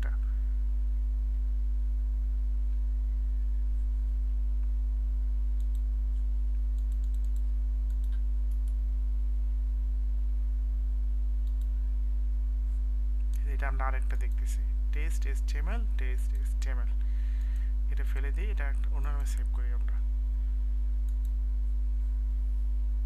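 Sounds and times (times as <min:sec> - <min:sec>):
electrical mains hum: 0:00.0 - 0:23.0
faint sharp clicks: 0:05.6 - 0:05.9, 0:11.4 - 0:11.7.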